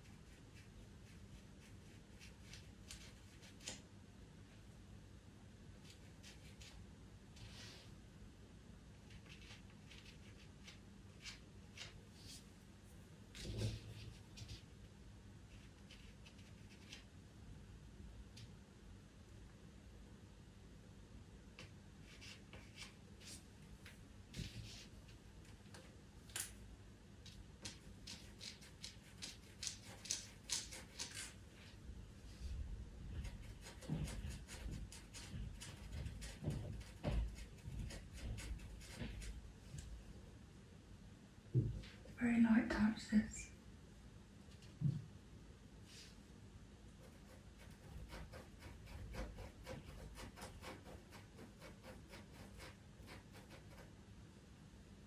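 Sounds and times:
pencil scratching on paper: 0:00.0 - 0:03.8, 0:09.1 - 0:12.4, 0:13.3 - 0:14.7, 0:15.5 - 0:17.1, 0:22.0 - 0:23.4, 0:27.6 - 0:31.4, 0:33.2 - 0:39.4, 0:47.0 - 0:54.0.

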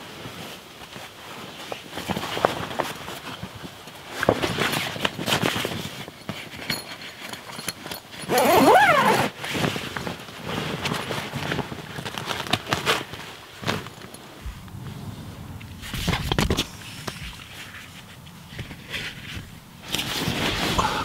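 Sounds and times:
canvas and sleeping bag rustling: 0:00.0 - 0:06.6, 0:08.3 - 0:21.0
zipper being pulled: 0:08.2 - 0:09.6.

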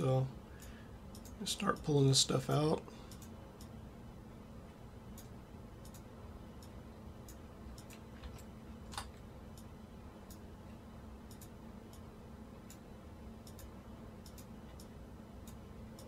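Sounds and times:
low steady hum: 0:00.0 - 0:16.0
computer mouse clicks: 0:00.6 - 0:01.4, 0:05.1 - 0:09.7, 0:11.3 - 0:12.0, 0:13.4 - 0:14.9.

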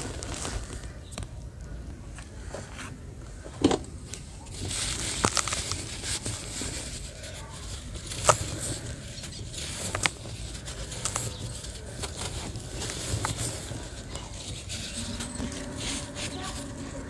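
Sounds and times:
cement chunks crumbling: 0:04.5 - 0:16.9.

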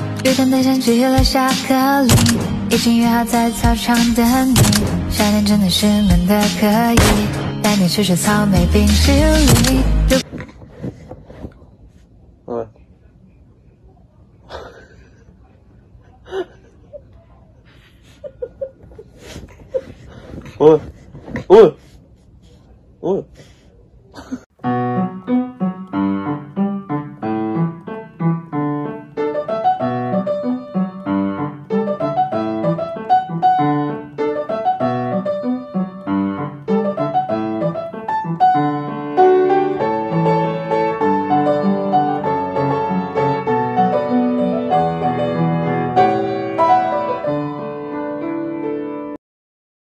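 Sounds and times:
piano music: 0:00.0 - 0:10.2, 0:24.6 - 0:49.2.

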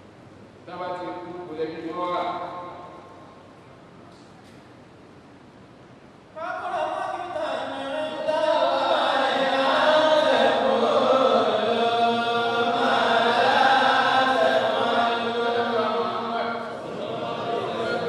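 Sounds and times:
men chanting religious recitation: 0:06.4 - 0:18.0.

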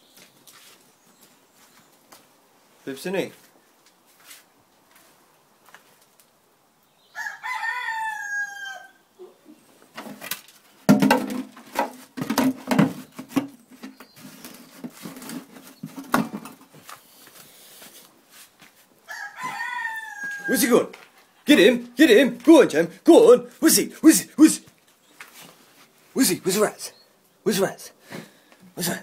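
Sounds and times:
rooster crowing: 0:07.1 - 0:09.1, 0:19.1 - 0:20.8
knocks scrapes and rustling: 0:09.9 - 0:18.9.

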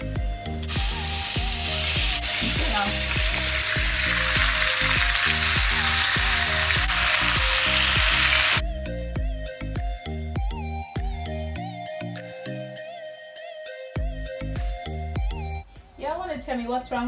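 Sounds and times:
food sizzling in hot oil: 0:00.7 - 0:08.6.

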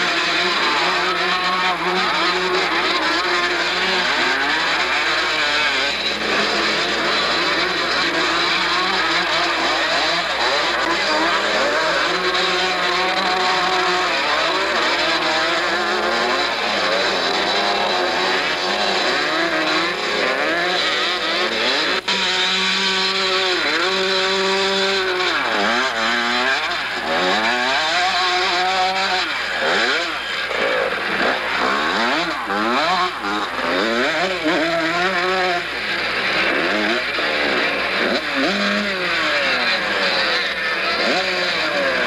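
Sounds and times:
motorcycle engines revving past: 0:00.0 - 0:42.0.

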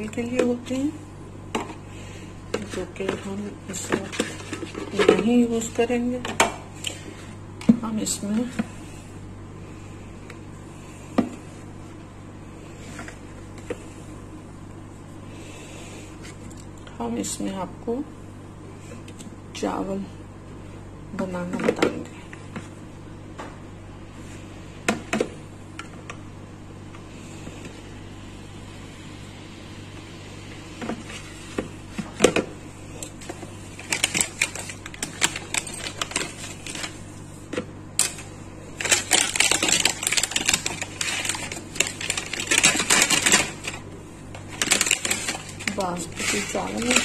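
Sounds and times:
low steady hum: 0:00.0 - 0:47.0
plastic bag rustling: 0:01.9 - 0:06.3, 0:30.8 - 0:47.0.

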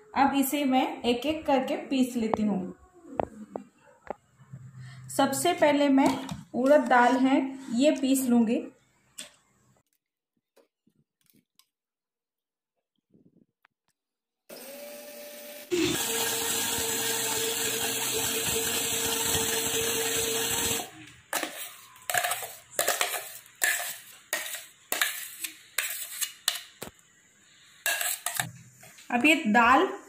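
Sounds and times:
mixer grinder running: 0:14.5 - 0:21.0
steel spoon scraping steel jar: 0:21.3 - 0:26.6, 0:27.8 - 0:28.5.

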